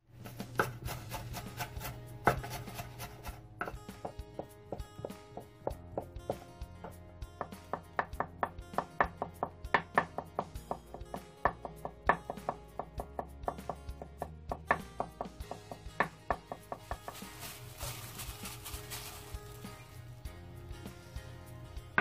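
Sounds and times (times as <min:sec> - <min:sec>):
soft background music: 0:00.0 - 0:22.0
knife chopping on wooden board: 0:00.2 - 0:06.1.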